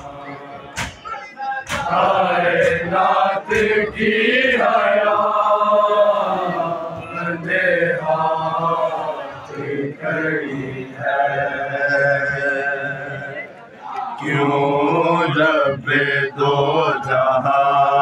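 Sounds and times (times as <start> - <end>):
men chanting a lament: 0.0 - 18.0
chest slaps: 0.8 - 1.0.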